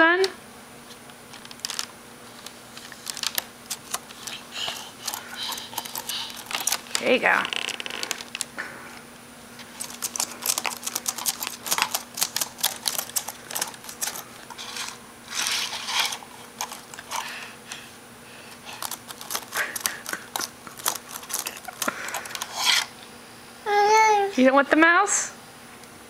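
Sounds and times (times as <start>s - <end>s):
baby slapping laptop keys: 2.8s - 7.1s, 9.8s - 14.3s, 18.7s - 22.9s.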